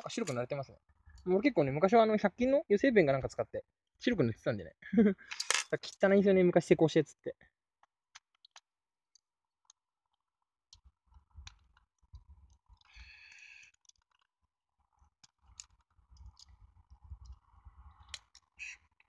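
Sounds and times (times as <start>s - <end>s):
plastic parts clicking: 8.1s - 8.7s, 11.4s - 14.3s, 15.1s - 16.6s.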